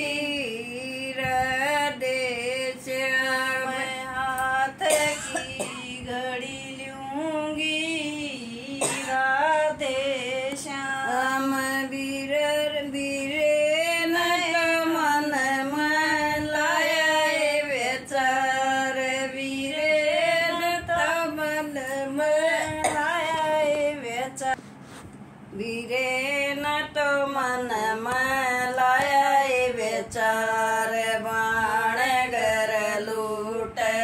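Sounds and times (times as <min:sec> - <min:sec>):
elderly woman singing unaccompanied: 0:00.0 - 0:24.6, 0:25.5 - 0:34.0.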